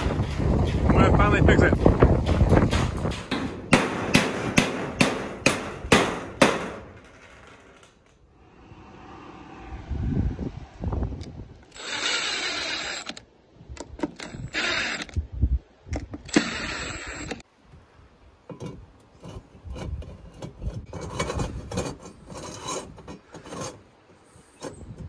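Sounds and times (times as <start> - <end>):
cordless drill driving screws: 11.7 - 13.2, 14.1 - 15.2, 16.3 - 17.4.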